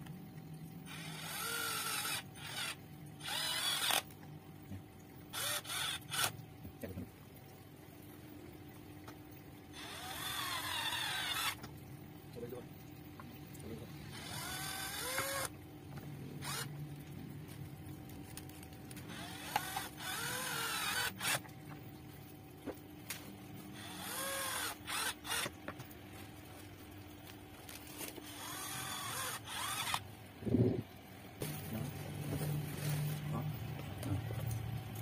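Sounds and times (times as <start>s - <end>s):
screws squeaking in plastic: 9.8s - 11.6s, 14.1s - 15.5s.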